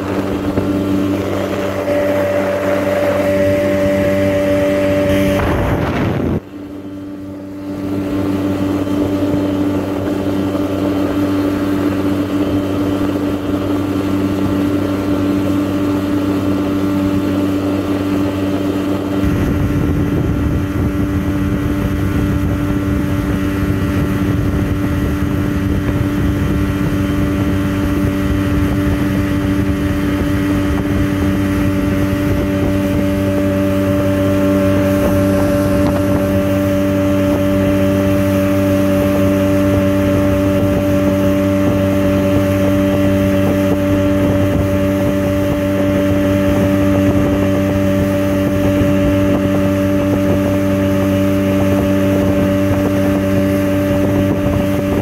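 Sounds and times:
low rushing noise: 0.0s - 13.7s
boat engine running: 0.0s - 55.0s.

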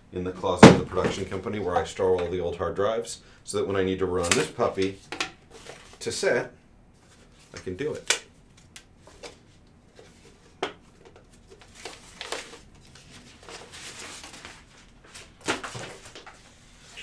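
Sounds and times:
paper packaging rustling: 7.0s - 17.0s.

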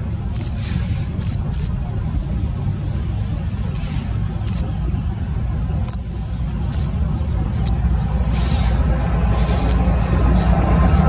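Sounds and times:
diesel locomotive engine rumble: 0.0s - 11.0s
wheel and rail noise: 0.0s - 11.0s
high-pitched ticks: 5.8s - 7.0s, 9.0s - 11.0s.

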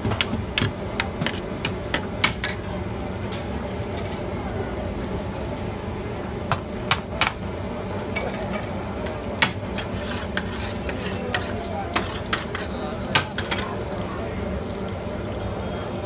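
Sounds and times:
metal spatula scraping griddle: 9.6s - 13.7s.

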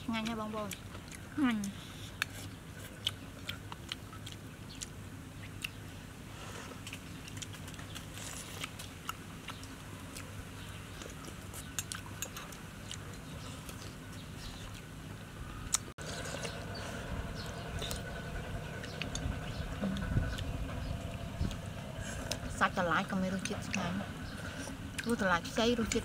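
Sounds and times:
chewing: 0.0s - 22.6s, 23.2s - 26.0s
steady low hum: 0.0s - 26.0s.

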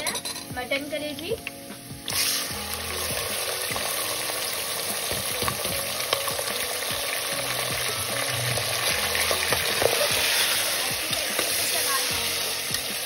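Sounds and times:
liver sizzling in hot oil: 0.4s - 13.0s.

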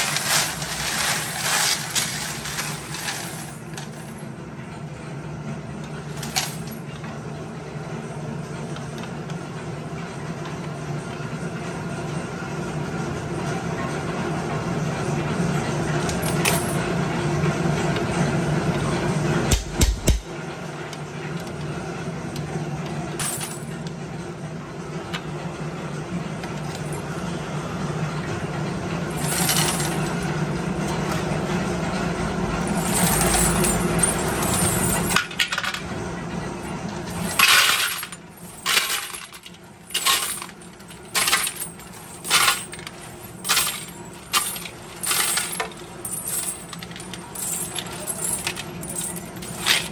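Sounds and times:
steel washers clinking: 0.0s - 4.1s, 29.2s - 30.2s, 32.7s - 35.8s, 37.1s - 49.9s
motor-driven drum humming: 0.0s - 49.9s.

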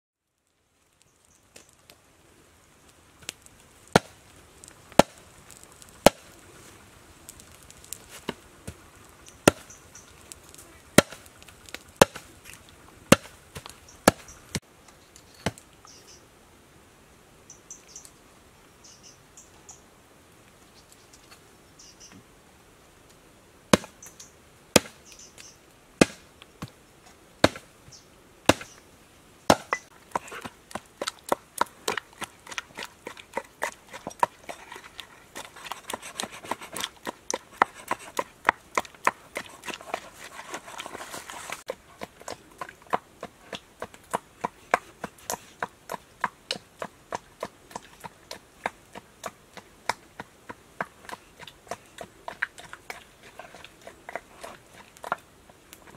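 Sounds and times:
cleaver chopping on wooden board: 11.0s - 11.2s, 12.0s - 12.2s, 13.1s - 13.3s, 23.7s - 23.9s, 26.0s - 26.2s, 27.4s - 27.6s, 28.5s - 28.7s, 29.5s - 29.9s.

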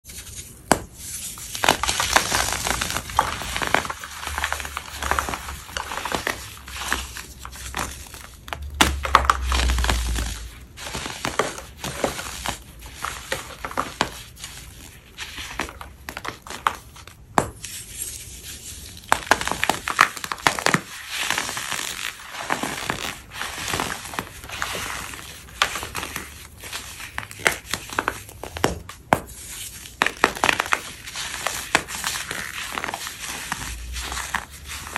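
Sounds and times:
chalky powder blocks crunching: 0.1s - 34.9s.

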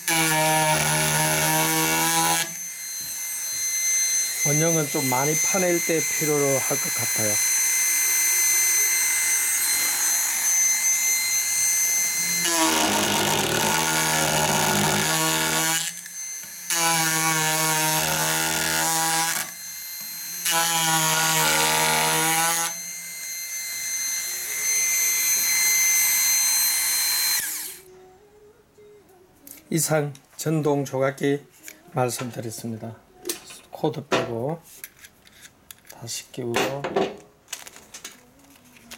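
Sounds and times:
blade cutting wood with buzzing chatter: 0.0s - 27.8s
electric carver whining: 0.0s - 27.9s.

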